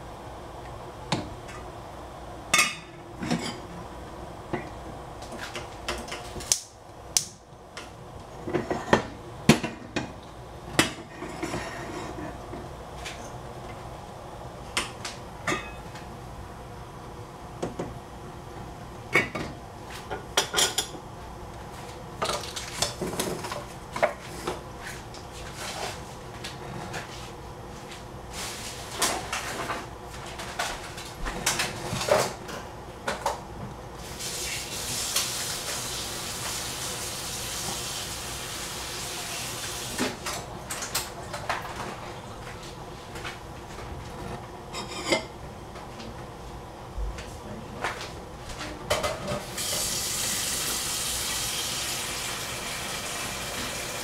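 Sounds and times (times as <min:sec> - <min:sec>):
steady hiss: 0:34.0 - 0:40.1.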